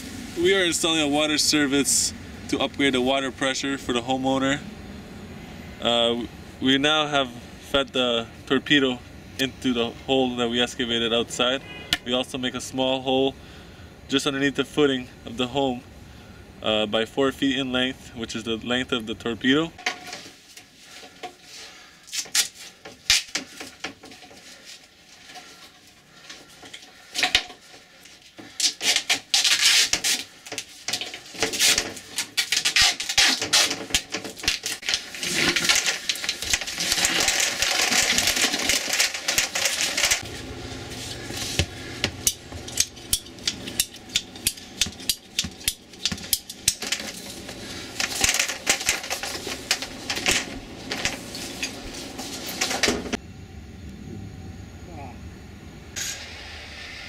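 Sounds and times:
low steady hum: 34.4s - 57.0s.

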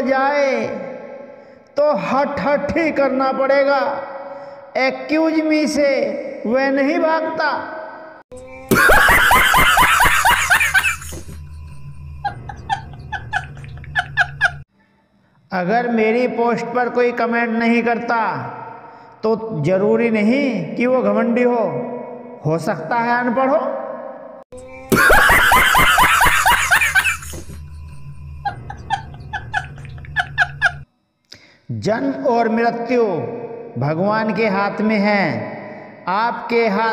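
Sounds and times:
man laughing hysterically: 8.7s - 11.5s, 12.2s - 14.6s, 24.9s - 27.6s, 28.4s - 30.9s
high squeaky giggles: 8.8s - 11.5s, 12.2s - 14.6s, 24.9s - 27.6s, 28.4s - 30.8s.

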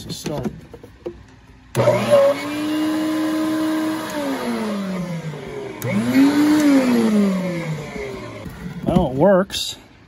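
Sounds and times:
vacuum motor winding down whine: 1.7s - 9.0s
vacuum cleaner motor running: 1.8s - 9.1s.

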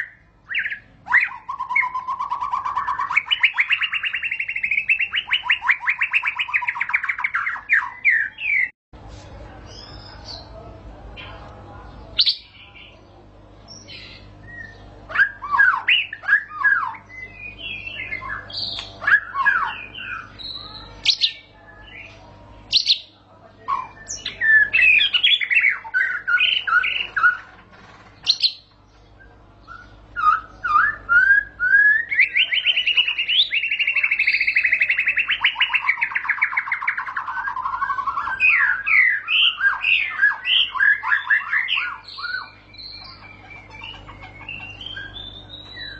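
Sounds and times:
bird singing whistled song: 0.0s - 8.7s, 13.7s - 22.1s, 23.7s - 27.4s, 28.2s - 45.9s.

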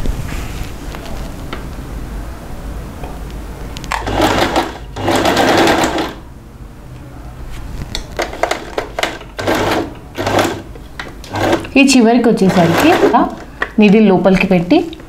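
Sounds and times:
electric sewing machine stitching: 4.0s - 6.2s, 9.0s - 13.4s.

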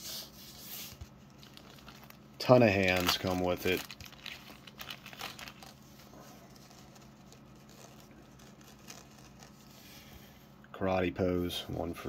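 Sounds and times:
low steady hum: 0.0s - 12.0s
plastic packaging crinkling: 1.1s - 9.8s.

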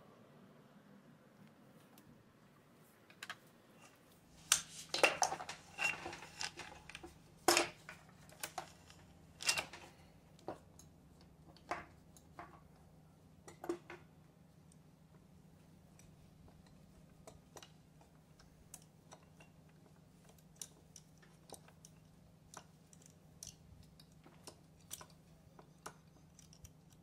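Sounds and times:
metal tools clinking: 3.8s - 10.1s.

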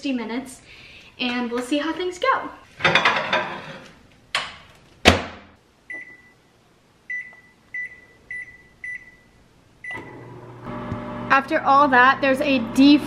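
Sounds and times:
plate scraping and rustling: 2.7s - 4.0s
high keypad beeps: 7.1s - 10.0s.

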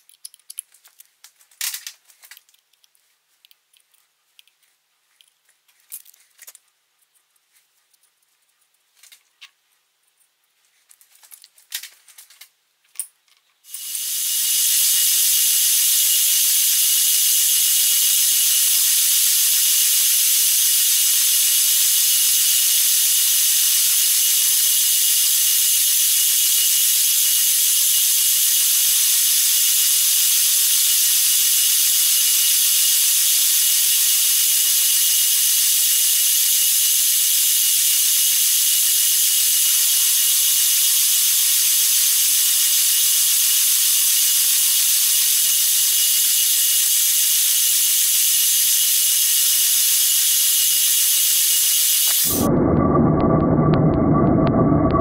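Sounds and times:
handling clicks and taps: 0.0s - 6.6s
milling machine whining: 47.7s - 55.0s.

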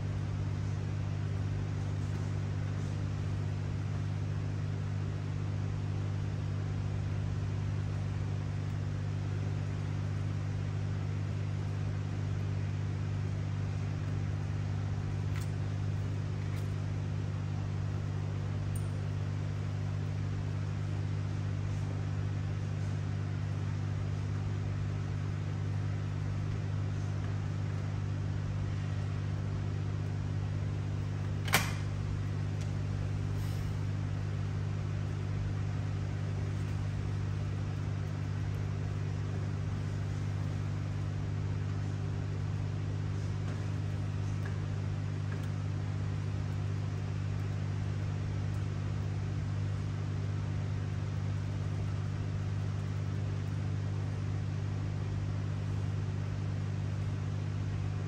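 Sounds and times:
sharp click: 31.4s - 31.9s.

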